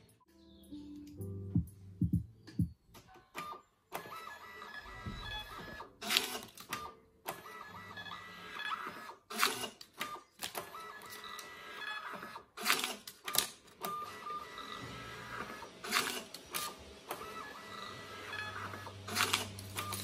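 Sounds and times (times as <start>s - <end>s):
printer motor whir: 3.4s - 13.0s, 13.7s - 20.0s
paper drive rattling: 12.6s - 20.0s.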